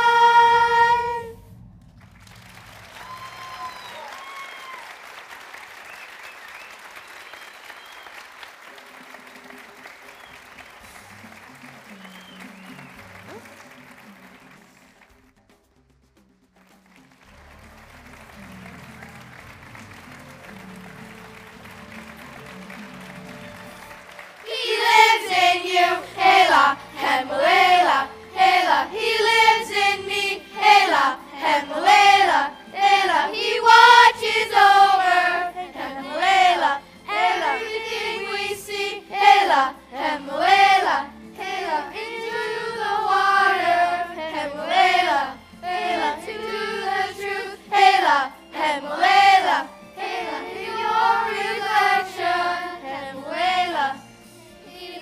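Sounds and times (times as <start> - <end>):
children's choir singing: 0.0 - 1.4, 24.3 - 55.0.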